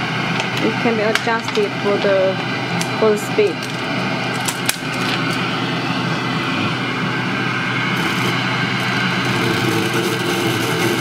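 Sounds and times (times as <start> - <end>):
fume extractor fan running: 0.0 - 11.0.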